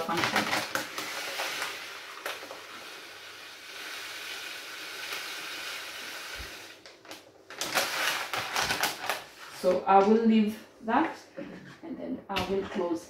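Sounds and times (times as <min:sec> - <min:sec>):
salt pouring hiss: 0:00.8 - 0:06.9
plastic pouch crinkling: 0:06.8 - 0:09.5.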